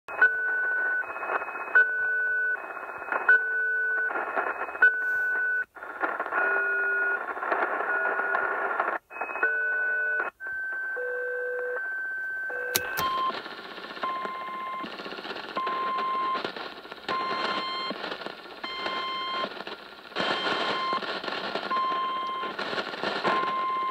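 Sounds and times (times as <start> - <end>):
two-tone radio beeps: 0.1 - 5.7, 6.3 - 13.4, 14.0 - 14.9, 15.6 - 16.5, 17.1 - 18.0, 18.6 - 19.5, 20.2 - 22.6, 23.2 - 23.9
radio static hiss: 4.1 - 6.4, 12.3 - 23.9
sharp click: 12.7 - 13.2.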